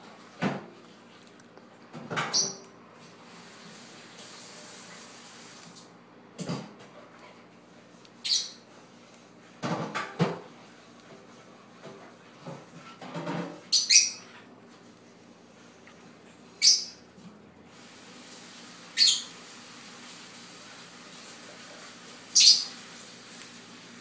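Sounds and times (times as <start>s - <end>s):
lovebird high-pitched calls: 2.3s - 2.6s, 8.2s - 8.6s, 13.7s - 14.3s, 16.6s - 17.0s, 18.9s - 19.4s, 22.3s - 22.8s.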